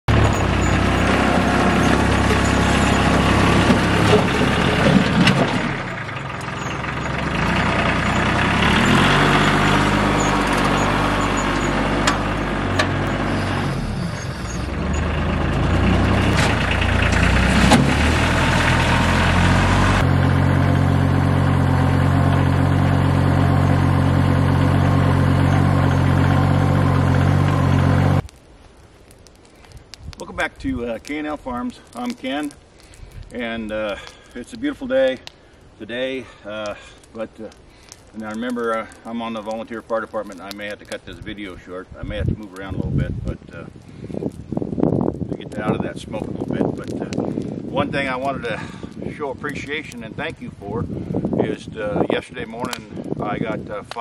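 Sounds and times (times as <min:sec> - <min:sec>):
tractor engine running: 0:00.0 - 0:28.3.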